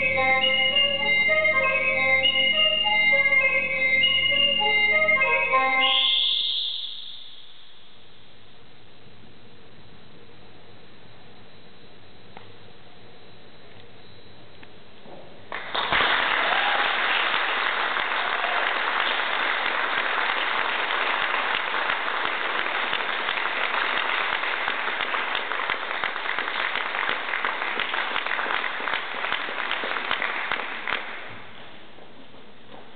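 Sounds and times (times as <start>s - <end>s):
audience applauding: 15.5s - 31.4s.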